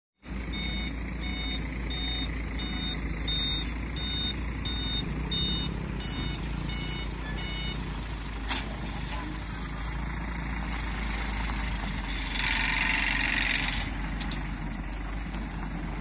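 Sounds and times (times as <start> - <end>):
truck reversing alarm beeping: 0.2 - 8.3
diesel engine running: 0.2 - 16.0.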